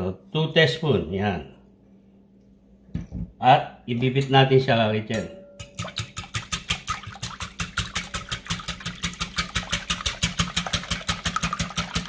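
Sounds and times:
whisk clicking against glass bowl: 5.6s - 12.0s.

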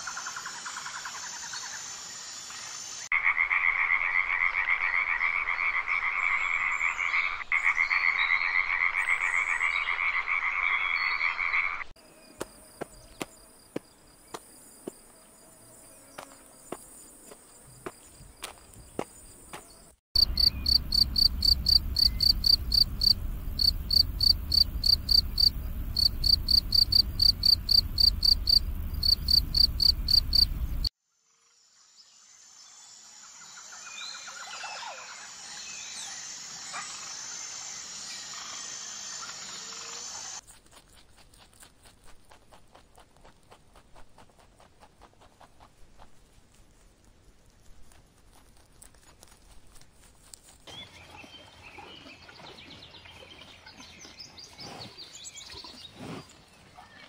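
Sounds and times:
cricket chirping: 12.0s - 34.4s
rabbit nibbling hay: 40.4s - 50.7s.

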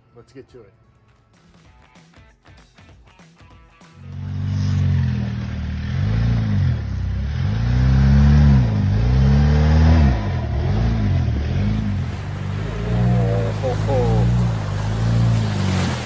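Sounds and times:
car engine revving: 4.0s - 16.0s.

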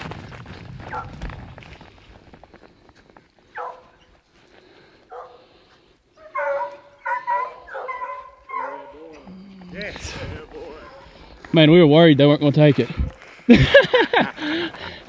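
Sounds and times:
hounds baying: 3.5s - 4.2s, 5.0s - 11.5s.

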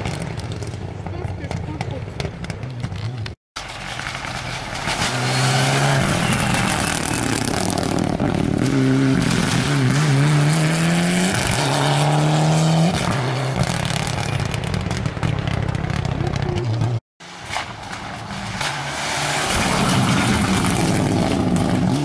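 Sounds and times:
car rushing away: 3.6s - 22.0s
rally car engine accelerating: 4.0s - 17.0s.

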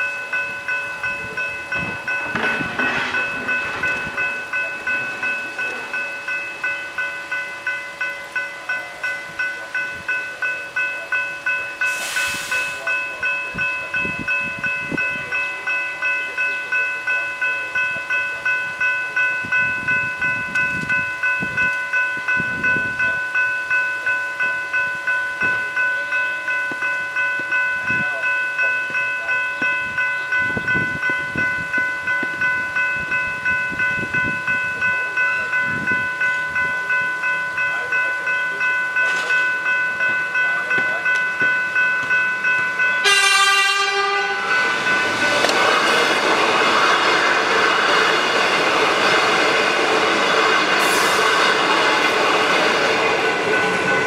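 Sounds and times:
level crossing bells ringing: 0.0s - 54.0s
short hiss: 11.9s - 12.8s.

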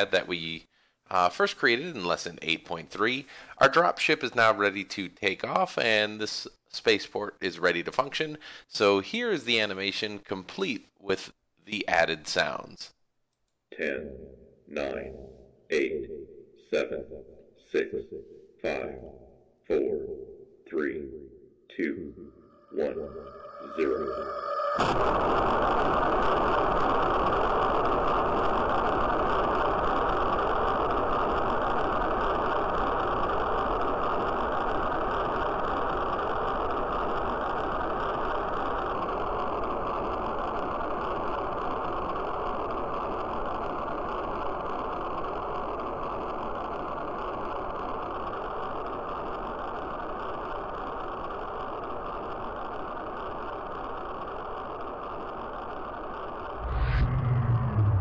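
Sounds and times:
rocket engine rush: 22.2s - 27.8s, 56.5s - 58.0s.

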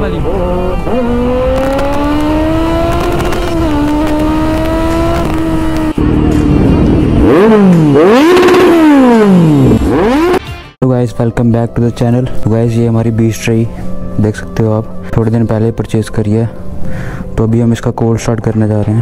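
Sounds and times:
motorcycle engine accelerating: 0.0s - 10.5s
motorcycle engine revving: 0.0s - 10.5s.

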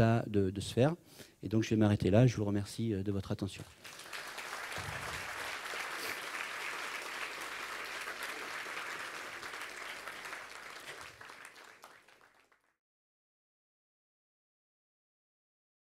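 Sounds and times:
audience applauding: 3.7s - 12.7s.

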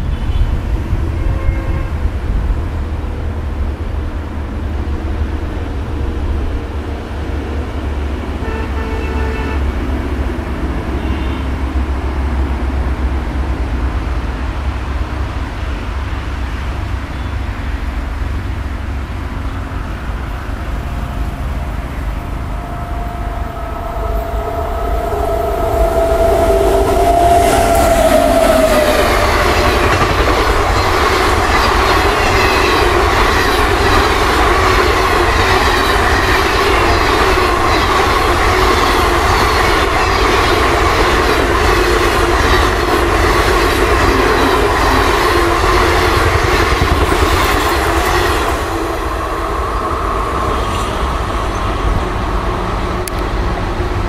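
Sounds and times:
locomotive horn: 0.0s - 2.2s, 8.3s - 10.0s, 10.8s - 12.0s, 20.2s - 46.4s
ringing rail tone: 19.5s - 52.5s
train wheels clattering over rail joints: 27.9s - 48.8s.

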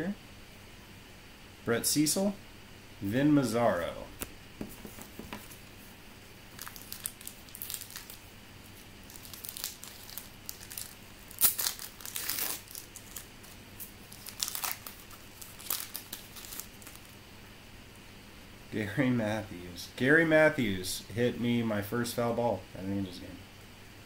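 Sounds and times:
wrapper crinkling and rustling: 6.5s - 17.2s.

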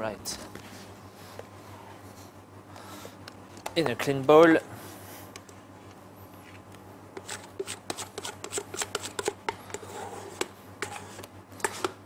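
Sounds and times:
plastic scraper scraping metal bowl: 7.2s - 12.0s.

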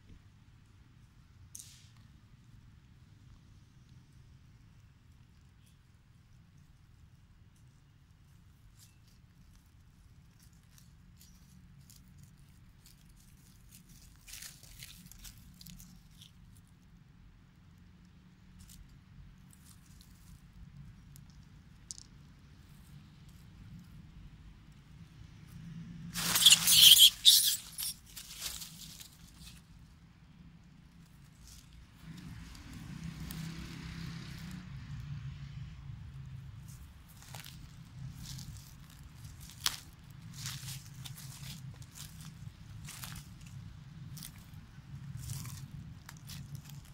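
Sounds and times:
dry leaves crackling and rustling: 10.4s - 16.6s, 26.1s - 29.7s, 31.3s - 34.5s, 36.6s - 46.9s
faint low rumble: 27.7s - 46.9s.

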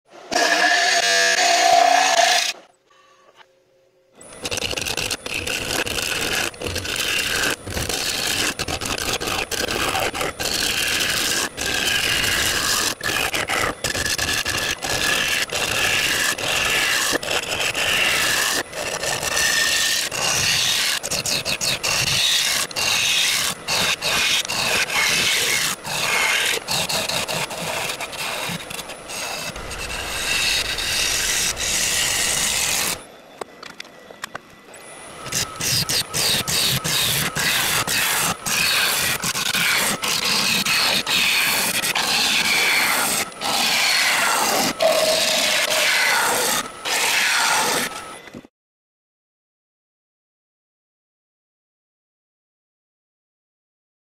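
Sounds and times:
lathe tool scraping wood: 0.2s - 2.7s, 4.2s - 33.1s, 35.1s - 48.2s.

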